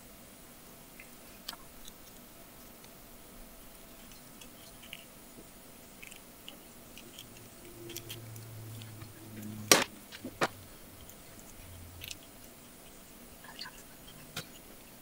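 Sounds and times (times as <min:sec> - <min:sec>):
sharp plastic snaps: 0:09.7 - 0:10.6.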